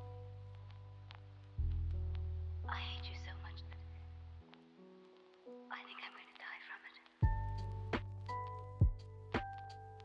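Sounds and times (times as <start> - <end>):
background music with bass line: 0.0 - 2.7, 7.2 - 10.0.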